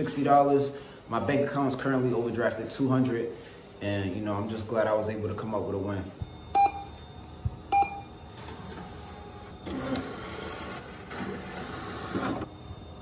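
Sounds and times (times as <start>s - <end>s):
machine beeping: 0.0s - 13.0s
deposit slot mechanism running: 8.0s - 12.5s.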